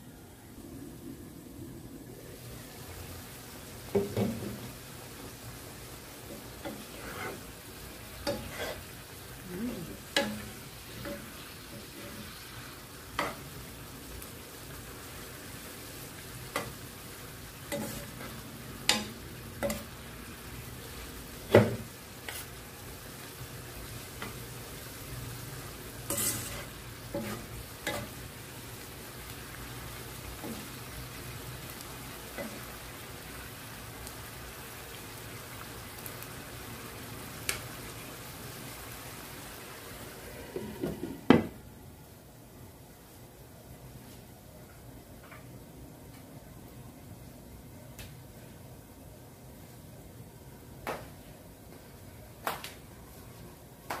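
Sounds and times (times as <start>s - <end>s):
noodles sizzling in a wok: 2.1s - 44.4s
utensils scraping and knocking pan: 26.1s - 28.1s.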